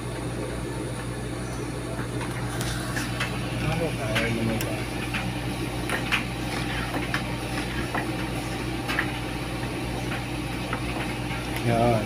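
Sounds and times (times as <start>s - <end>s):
tumble dryer humming: 0.0s - 12.0s.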